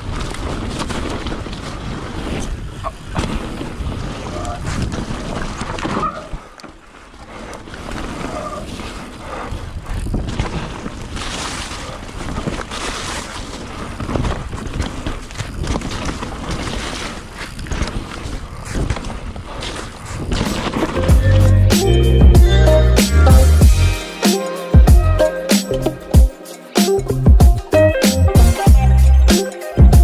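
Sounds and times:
wind buffeting microphone: 0.0s - 6.5s, 7.6s - 22.4s
bike knocking and rattling: 0.0s - 21.4s
tyres running over dirt: 0.0s - 23.0s.

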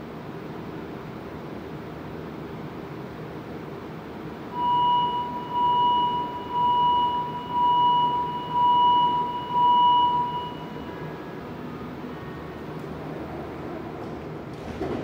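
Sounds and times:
pulsing high door warning chime: 4.5s - 11.1s.

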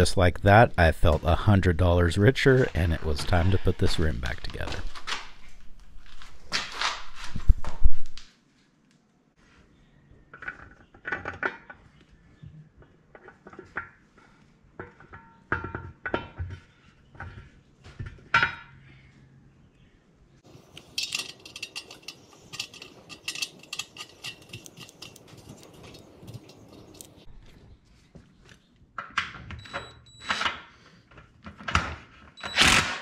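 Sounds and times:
bolts clinking against metal rim: 20.5s - 27.3s.

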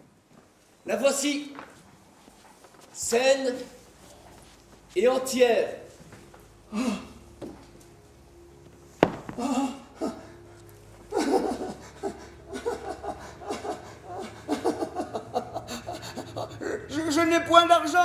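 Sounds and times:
sharp knock: 9.0s - 9.4s
man exclaiming: 16.9s - 18.0s.

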